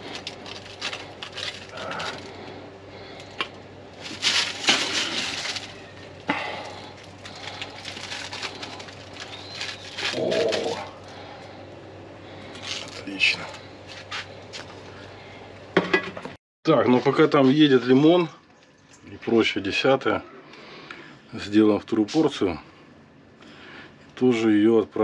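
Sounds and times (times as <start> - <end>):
rustling: 4.0 - 11.2.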